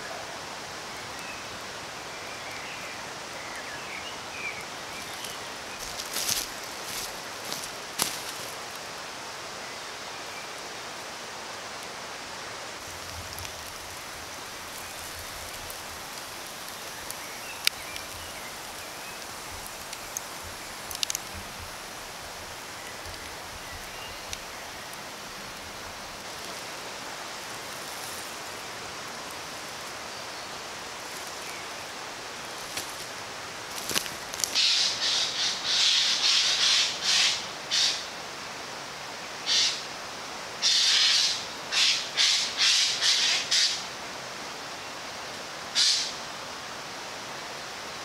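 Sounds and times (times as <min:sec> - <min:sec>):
campfire embers popping: 0:04.6 - 0:08.9, 0:12.8 - 0:34.8.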